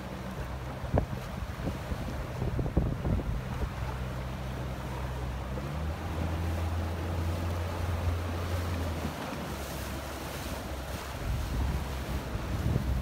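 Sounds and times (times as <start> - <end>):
choppy water rushing: 0.0 - 13.0
outboard motor hum: 0.0 - 13.0
wind buffeting microphone: 0.4 - 4.0, 10.9 - 13.0.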